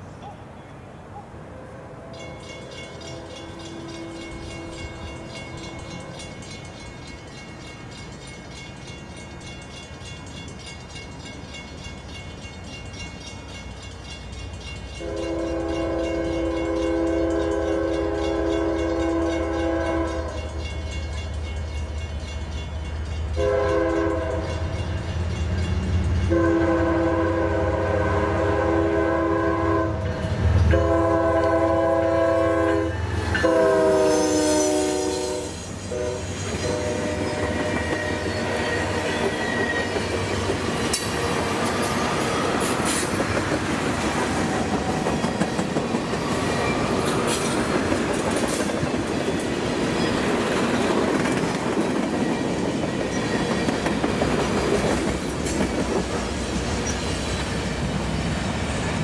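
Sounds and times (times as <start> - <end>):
locomotive engines rumbling: 0.0 - 59.0
locomotive horn blasts: 1.6 - 6.2, 15.0 - 20.6, 23.3 - 24.8, 26.3 - 30.1, 30.7 - 39.8
train wheels clacking on rails: 2.2 - 26.5, 32.9 - 59.0.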